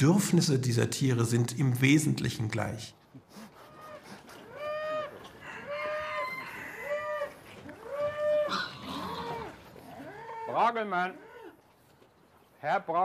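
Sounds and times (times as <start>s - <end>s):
farm animal calling: 3.6s - 11.8s.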